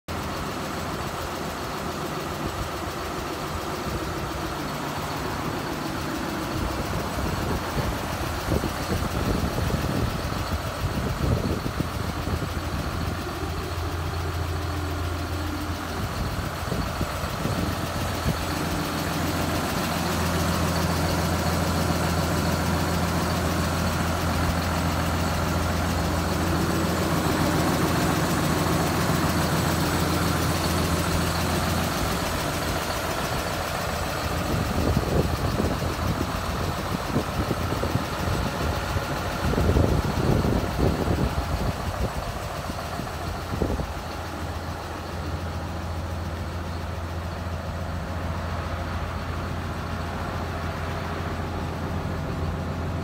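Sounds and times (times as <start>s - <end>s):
tractor diesel engine idling: 0.0s - 53.0s.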